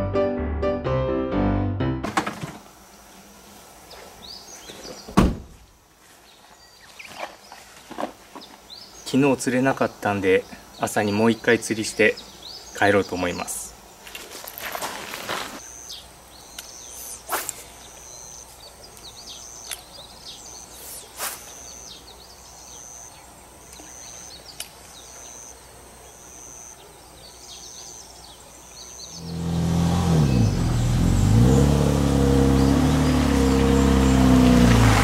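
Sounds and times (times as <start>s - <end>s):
birds chirping: 2.9s - 5.3s, 6.2s - 14.0s, 15.6s - 35.0s
car engine revving: 29.2s - 35.0s.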